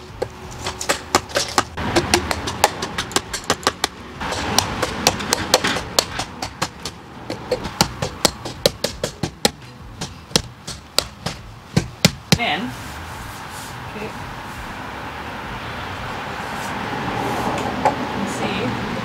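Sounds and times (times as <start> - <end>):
hammer striking pipe: 0.2 - 12.5.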